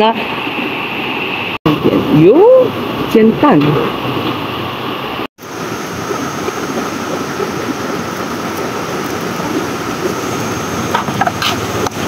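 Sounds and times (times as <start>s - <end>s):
stream flowing over rocks: 2.8s - 12.0s.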